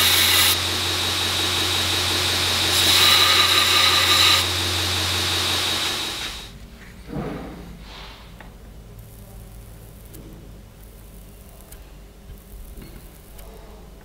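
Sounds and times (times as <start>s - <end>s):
belt grinder running: 0.0s - 6.5s
blade grinding on belt: 0.0s - 6.5s.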